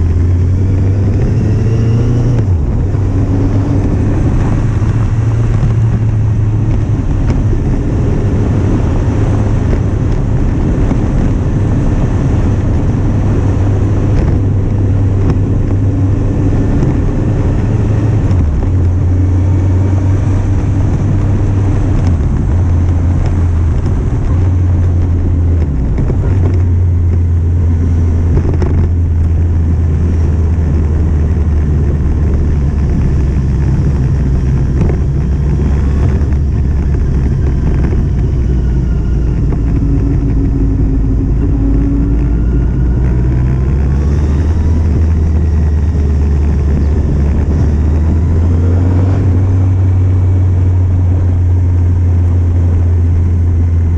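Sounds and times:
motorcycle engine running: 0:00.0 - 0:53.9.

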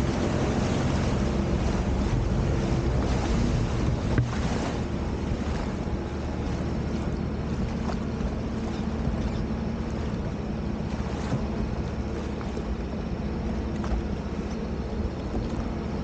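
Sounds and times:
wind noise on microphone: 0:00.0 - 0:05.8
jet ski engine running: 0:00.0 - 0:16.0
water noise: 0:00.0 - 0:16.0.

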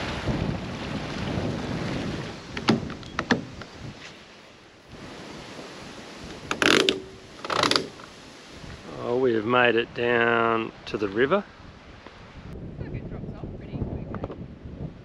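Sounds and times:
waves washing over rocky shore: 0:00.0 - 0:03.6, 0:04.9 - 0:09.4
wind: 0:00.0 - 0:15.0
tie-down strap clicking and rasping: 0:06.5 - 0:08.1.

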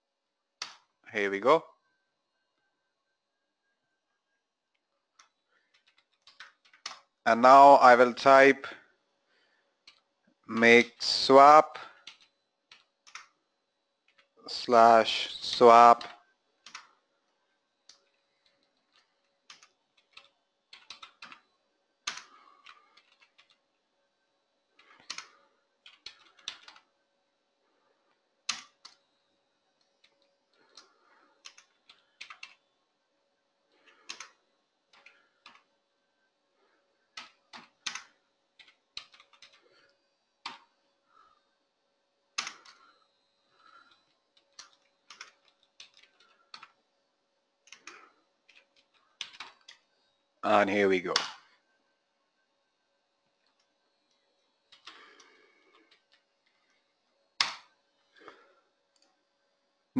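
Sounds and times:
faint steady hum: 0:00.0 - 0:59.9
computer keyboard typing: 0:00.6 - 0:00.9, 0:05.2 - 0:07.1, 0:11.9 - 0:13.4, 0:14.0 - 0:14.3, 0:16.0 - 0:17.0, 0:17.8 - 0:23.7, 0:24.8 - 0:26.9, 0:28.4 - 0:29.0, 0:29.8 - 0:32.7, 0:33.8 - 0:35.7, 0:37.1 - 0:41.2, 0:42.4 - 0:43.0, 0:43.6 - 0:46.8, 0:47.6 - 0:49.8, 0:53.4 - 0:56.8, 0:57.4 - 0:58.4.

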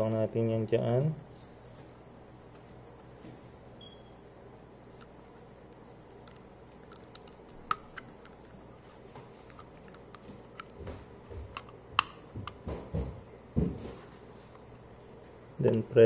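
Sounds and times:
plastic and metal clicks: 0:06.1 - 0:08.6
soft handling bumps: 0:08.8 - 0:15.8.

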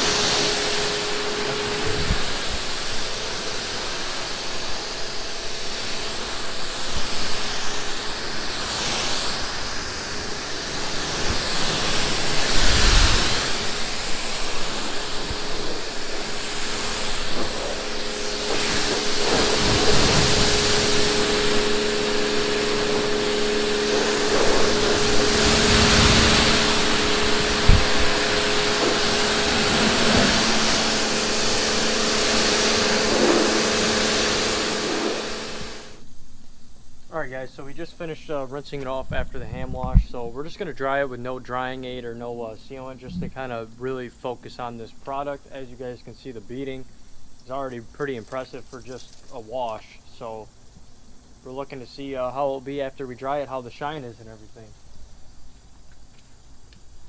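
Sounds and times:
pressure washer spraying water: 0:00.0 - 0:36.1
steady low hum: 0:00.0 - 0:57.0.

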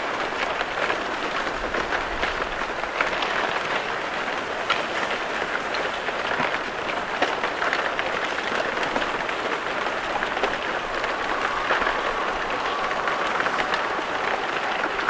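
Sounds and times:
ice plates crackling and clinking: 0:04.6 - 0:15.0.

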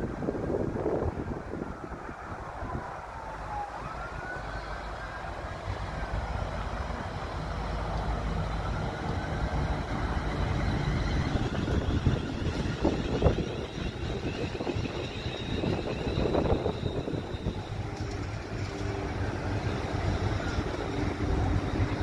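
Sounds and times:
high wavering whine: 0:03.0 - 0:22.0
train wheels rumbling on rail: 0:04.7 - 0:22.0.

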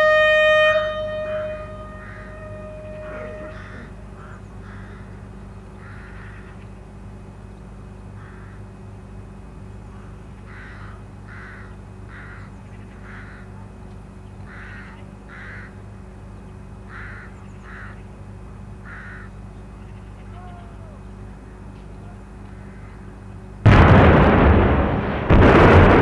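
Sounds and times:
low hum: 0:00.0 - 0:26.0
bird harsh calls: 0:01.4 - 0:06.7, 0:09.9 - 0:13.5, 0:14.4 - 0:15.8, 0:16.9 - 0:18.2, 0:18.8 - 0:21.6.

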